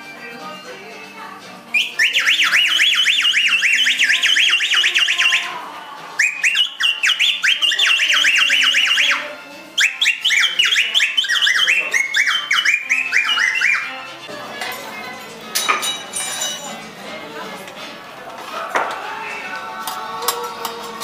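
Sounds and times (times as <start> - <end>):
whistle warbling trills: 1.7 - 5.6, 6.2 - 9.2, 9.8 - 14.1.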